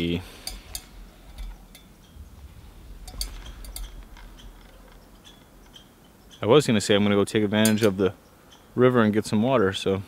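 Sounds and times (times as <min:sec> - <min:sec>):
faint low rumble: 0:00.9 - 0:06.3.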